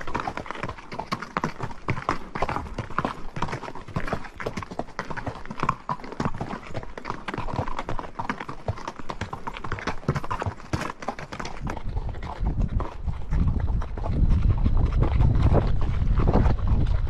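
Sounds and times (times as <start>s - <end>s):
horse hooves clopping: 0.0s - 17.0s
low rumble: 12.2s - 17.0s.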